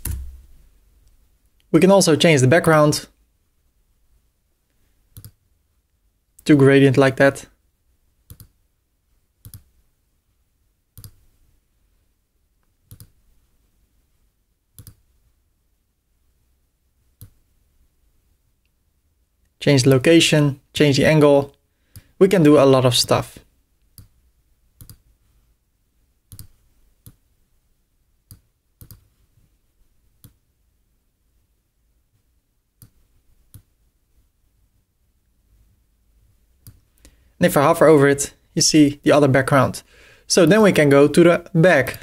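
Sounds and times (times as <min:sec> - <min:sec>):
computer mouse clicking: 0:00.0 - 0:00.4, 0:05.1 - 0:05.4, 0:08.3 - 0:08.6, 0:09.4 - 0:09.7, 0:11.0 - 0:11.2, 0:12.9 - 0:13.2, 0:14.8 - 0:15.1, 0:24.8 - 0:25.0, 0:26.3 - 0:27.2, 0:28.3 - 0:29.2, 0:30.2 - 0:30.4, 0:36.6 - 0:37.2
mouse button clicks: 0:00.0 - 0:00.4
faint room noise: 0:00.0 - 0:42.0.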